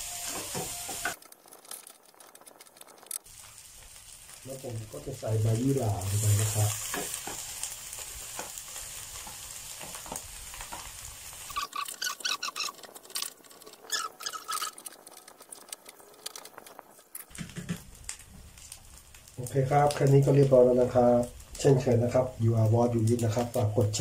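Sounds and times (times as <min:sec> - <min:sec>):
light sizzle: 0:00.0 - 0:24.0
quick clicking scrapes: 0:11.5 - 0:17.3.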